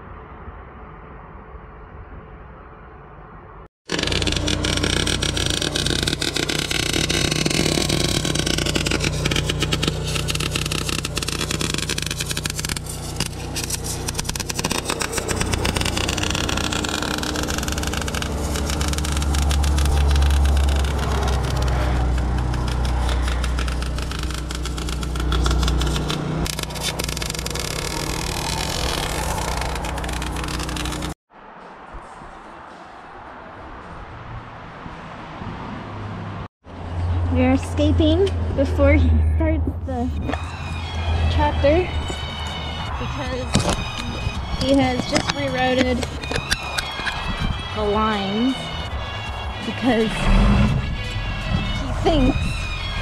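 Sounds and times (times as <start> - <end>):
welding arc crackling: 3.9 - 31.2
engine droning: 3.9 - 31.8, 35.8 - 53.0.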